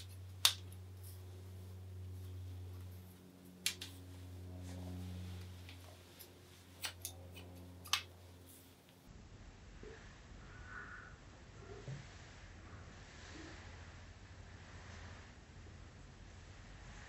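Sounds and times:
scissors snipping hair: 0:00.0 - 0:01.2, 0:02.8 - 0:04.1, 0:05.4 - 0:09.0
steady low hum: 0:00.0 - 0:17.0.

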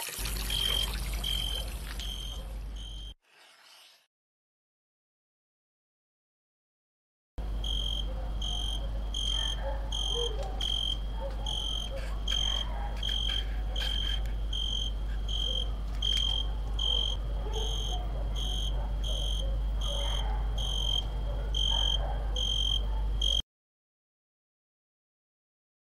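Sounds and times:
cricket chirping: 0:00.2 - 0:03.2, 0:07.5 - 0:23.4.

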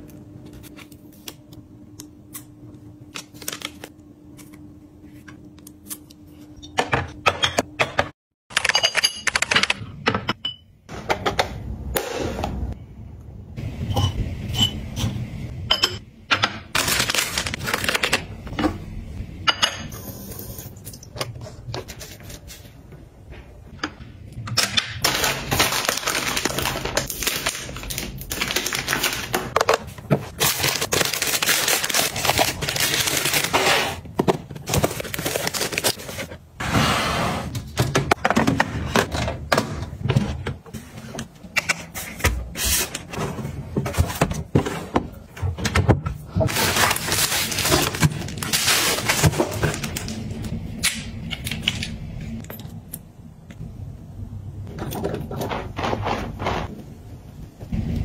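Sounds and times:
plastic packaging crinkling: 0:25.0 - 0:34.0, 0:34.6 - 0:36.3, 0:46.5 - 0:50.5.

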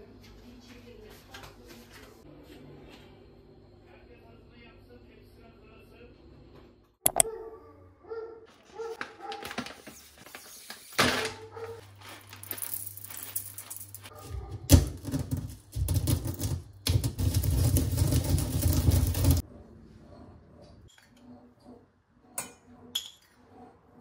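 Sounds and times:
pestle crushing beans: 0:07.1 - 0:07.3, 0:14.8 - 0:19.4
coffee beans rattling poured: 0:12.0 - 0:14.1, 0:16.9 - 0:19.4.

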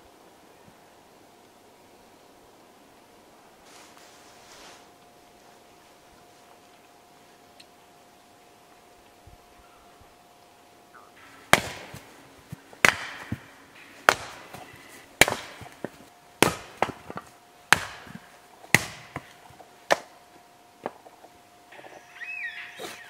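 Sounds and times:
axe chopping firewood: 0:11.2 - 0:21.9.

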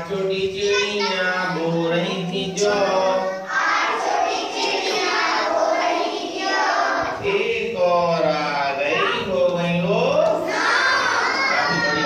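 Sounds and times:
children singing together: 0:02.1 - 0:07.3, 0:10.4 - 0:12.0.

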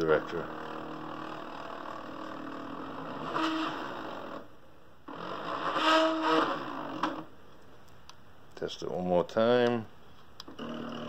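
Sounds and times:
stepper motor whine: 0:00.0 - 0:04.5.

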